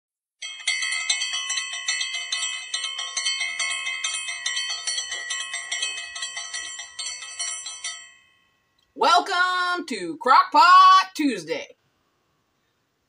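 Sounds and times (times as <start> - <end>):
hand bell ringing: 0.4 - 8.6.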